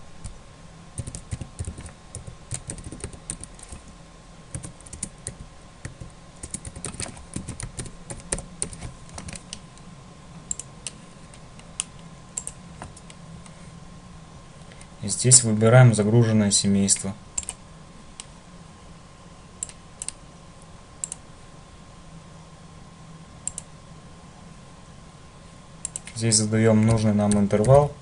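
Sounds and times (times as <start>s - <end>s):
computer keyboard keys clicking: 1.0s - 3.8s, 4.5s - 9.6s, 12.4s - 12.6s, 17.4s - 17.6s.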